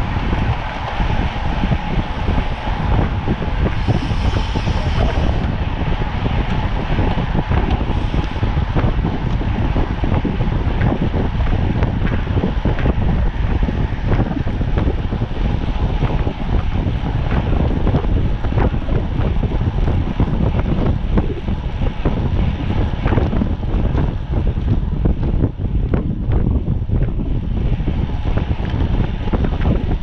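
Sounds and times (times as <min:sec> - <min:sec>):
wind buffeting microphone: 0:00.0 - 0:30.0.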